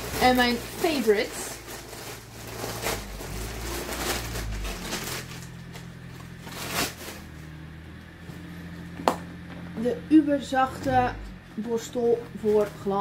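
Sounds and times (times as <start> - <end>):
plastic bag rustling: 0.0 - 7.8, 10.5 - 13.0.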